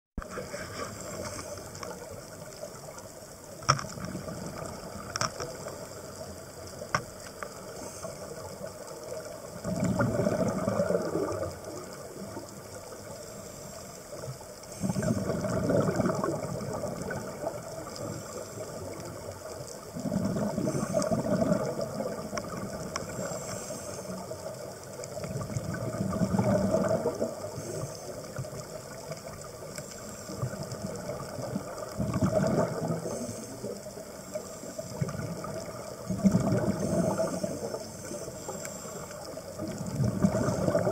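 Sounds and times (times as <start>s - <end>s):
exhaled bubbles rushing underwater: 0.2s - 40.9s
steady low hiss: 11.4s - 15.2s, 16.6s - 40.9s.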